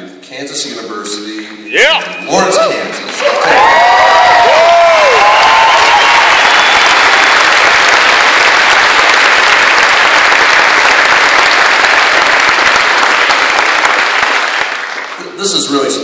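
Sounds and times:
audience applauding: 2.7s - 15.9s.

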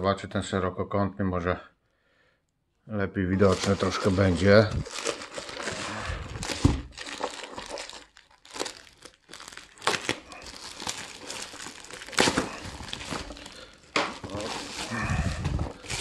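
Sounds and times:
plastic bag crinkling and tearing: 3.4s - 16.0s.

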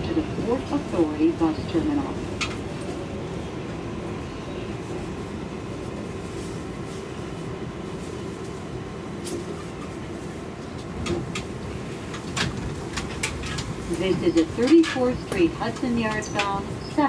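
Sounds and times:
subway car running noise: 0.0s - 17.0s
sharp clicks and knocks: 11.0s - 16.7s.

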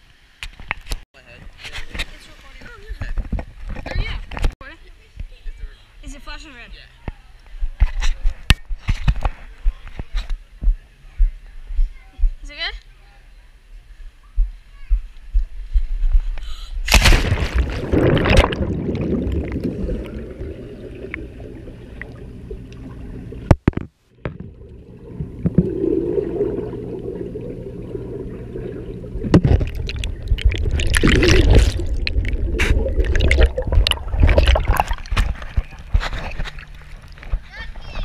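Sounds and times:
muffled underwater wash: 16.9s - 37.6s
pool water splashing: 16.9s - 37.9s.

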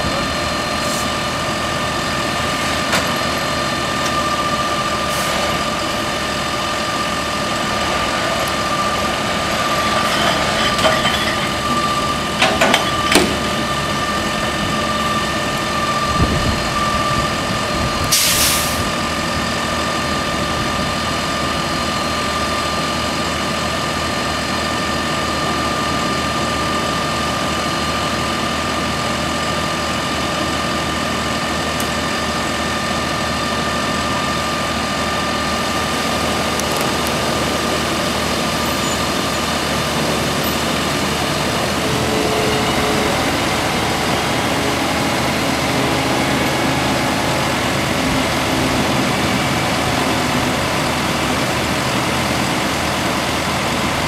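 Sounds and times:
diesel engines running: 0.0s - 54.0s
air hiss: 18.1s - 18.9s.

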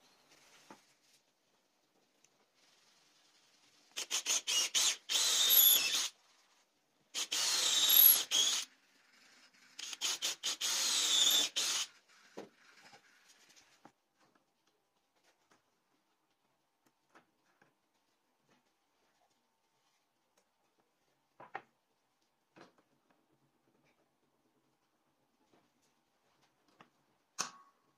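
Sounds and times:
drill trigger pulses: 4.0s - 6.1s, 7.2s - 8.7s, 9.8s - 11.9s
cordless drill boring into wood: 4.0s - 6.2s, 7.1s - 8.8s, 9.8s - 12.0s.

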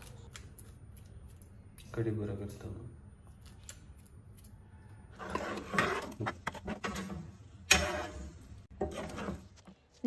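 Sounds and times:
metal ladle scraping pan: 5.2s - 9.6s.

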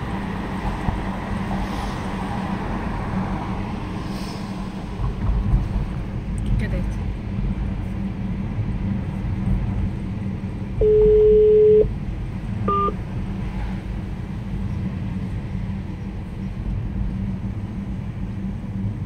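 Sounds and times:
car road noise: 0.0s - 19.0s
short higher beep: 10.8s - 11.9s, 12.7s - 13.0s
telephone ringback beep: 10.8s - 11.9s, 12.7s - 13.0s.

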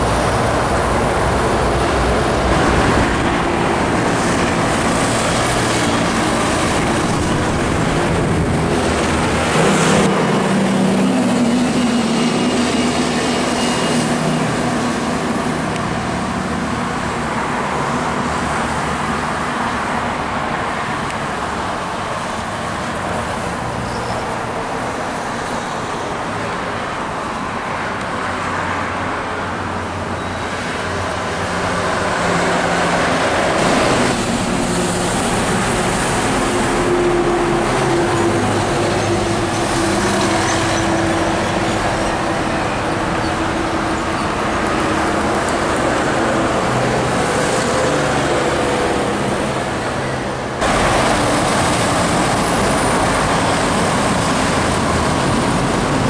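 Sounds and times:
diesel truck engines droning: 0.0s - 56.0s
tyre and road noise: 0.0s - 56.0s.

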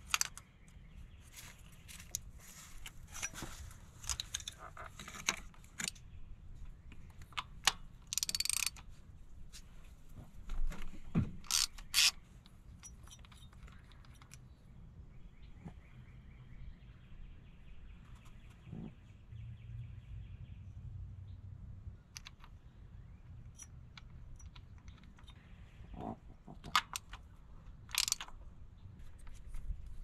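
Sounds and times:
hand tools clicking and tapping: 0.0s - 0.5s, 6.9s - 8.9s, 23.5s - 28.4s
faint background noise: 0.0s - 30.0s.

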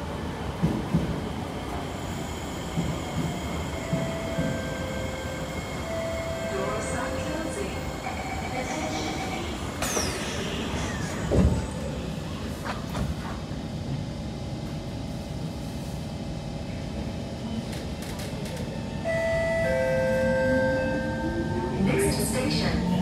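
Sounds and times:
train carriage rumble: 0.0s - 23.0s.

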